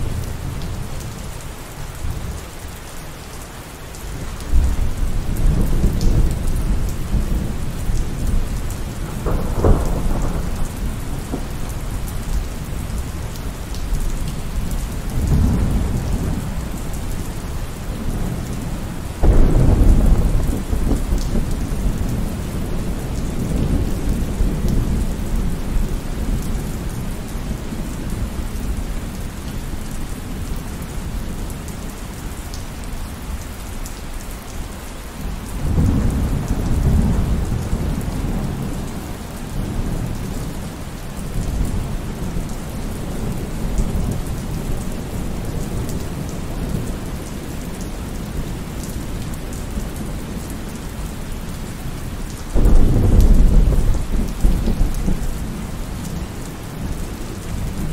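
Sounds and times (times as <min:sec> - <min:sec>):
heavy rain: 0:00.0 - 0:57.9
rolling thunder: 0:04.5 - 0:13.1, 0:15.0 - 0:16.8, 0:19.2 - 0:26.4, 0:52.6 - 0:55.6.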